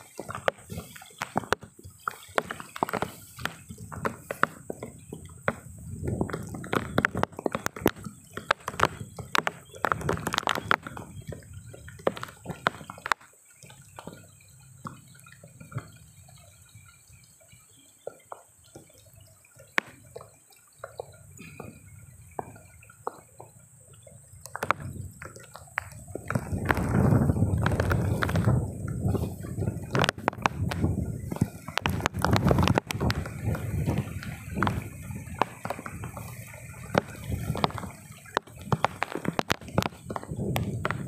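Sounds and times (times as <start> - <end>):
footsteps through wet plants: 0.0 - 14.2, 24.6 - 41.0
small clicks and knocks: 0.0 - 41.0.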